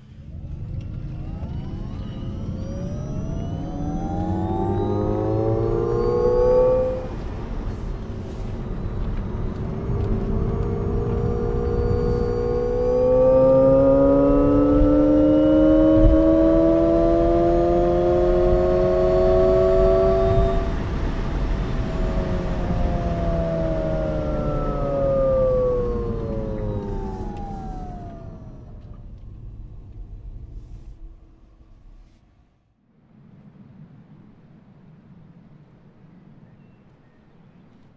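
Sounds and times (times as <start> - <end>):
road and tyre rumble: 0.0 - 32.2
electronic car driving tone: 0.2 - 30.3.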